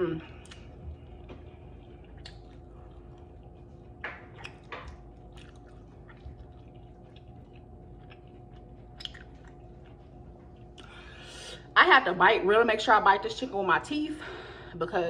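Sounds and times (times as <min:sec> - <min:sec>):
faint steady hum: 0:00.0 - 0:15.0
chewing and wet mouth smacks: 0:00.2 - 0:11.3.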